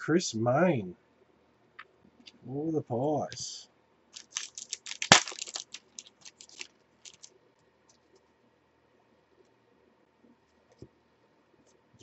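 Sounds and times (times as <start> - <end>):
card wrapper crinkling: 4.2 - 7.4
cards rustling and clicking: 4.2 - 8.3.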